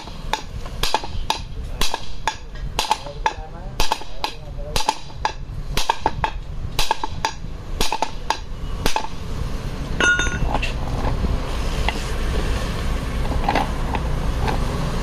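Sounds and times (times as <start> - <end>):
hammer striking steel: 0.0 - 9.2, 10.0 - 10.7
ringing metallic clink: 10.0 - 10.6.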